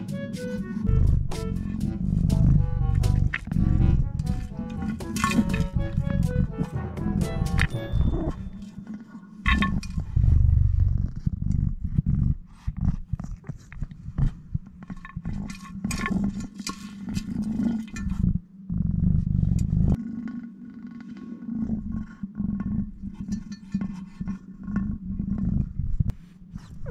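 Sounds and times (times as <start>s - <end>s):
low rumble: 0.7s - 8.8s, 9.5s - 15.3s, 18.0s - 20.0s.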